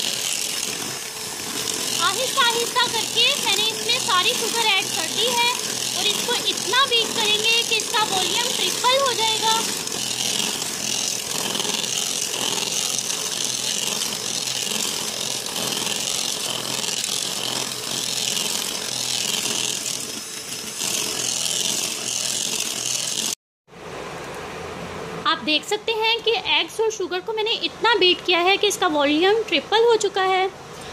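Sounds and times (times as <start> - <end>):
electric hand mixer running: 0.0 - 23.4.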